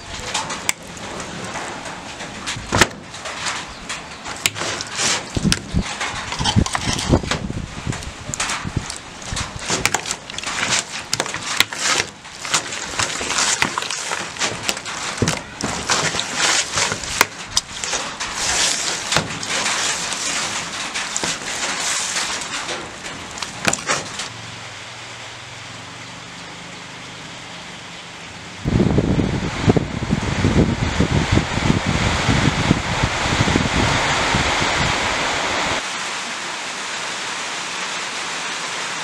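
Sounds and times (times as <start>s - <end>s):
wet squelching of meat: 8.0s - 24.3s.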